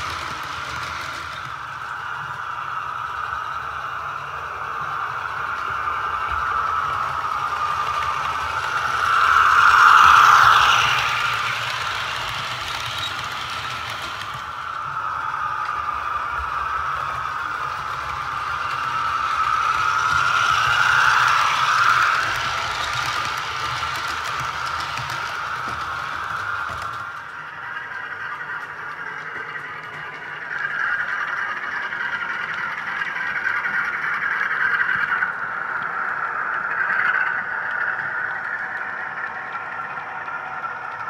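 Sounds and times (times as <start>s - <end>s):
model train diesel engine sound: 0.0s - 41.0s
model train running on track: 0.0s - 41.0s.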